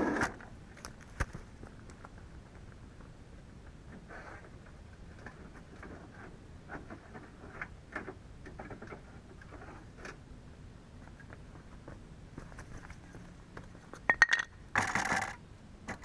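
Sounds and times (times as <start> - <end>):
faint footsteps: 11.0 - 14.0.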